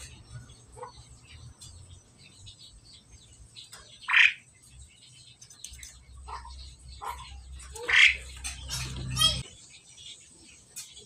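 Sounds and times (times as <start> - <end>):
starlings giving harsh calls: 3.7 - 4.6, 5.8 - 9.8.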